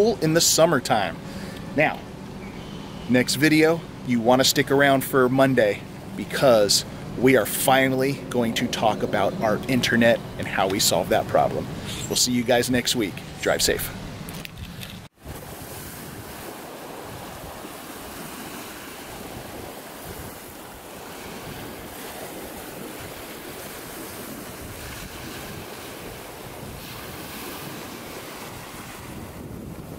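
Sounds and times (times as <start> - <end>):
sea waves washing: 0.0 - 29.9
wind noise on microphone: 14.0 - 29.9.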